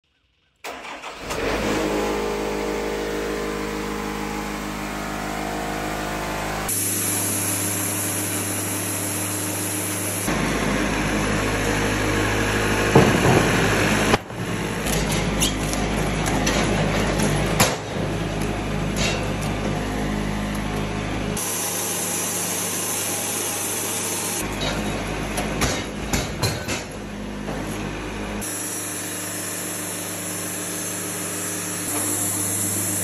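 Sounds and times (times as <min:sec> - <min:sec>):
engine cranking and running: 0:00.6 - 0:07.8.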